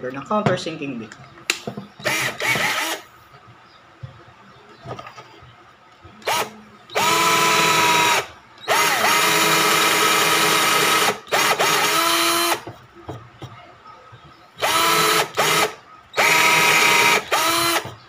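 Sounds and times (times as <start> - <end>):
cordless drill motor whine: 2.0 - 3.0, 6.2 - 12.6, 14.6 - 18.0.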